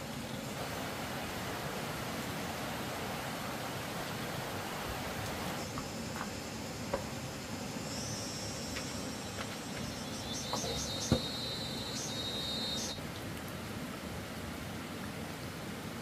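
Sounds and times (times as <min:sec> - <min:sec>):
high-pitched insect trilling: 0:07.7 - 0:13.0.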